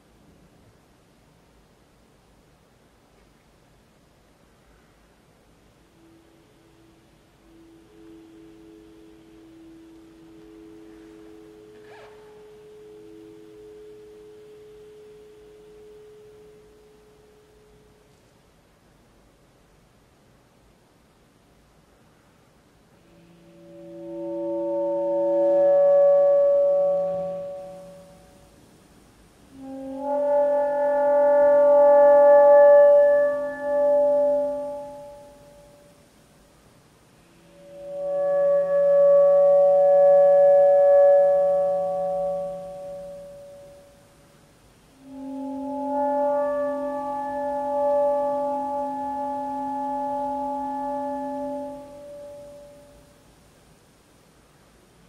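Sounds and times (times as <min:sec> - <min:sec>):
saxophone long chord-like tone: 0:05.8 - 0:18.2, 0:23.0 - 0:28.8, 0:29.5 - 0:36.1, 0:37.1 - 0:44.2, 0:44.9 - 0:53.2
saxophone held notes: 0:29.5 - 0:36.1, 0:44.8 - 0:53.2.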